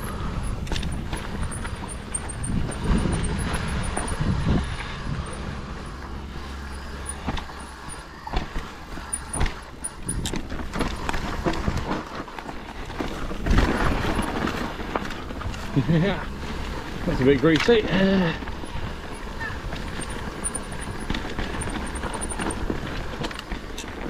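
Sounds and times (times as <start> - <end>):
wind on microphone: 0.0 - 5.8
bike chain and frame clattering: 0.0 - 24.0
tyres rolling over dirt: 0.0 - 24.0.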